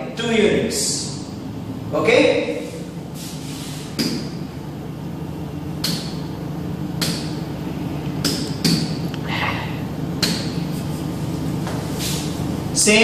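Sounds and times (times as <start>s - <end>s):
steady low hum: 0.0s - 13.0s
taps on a whiteboard screen: 4.0s - 4.3s, 5.8s - 6.2s, 7.0s - 7.4s, 8.2s - 9.0s, 10.2s - 10.6s.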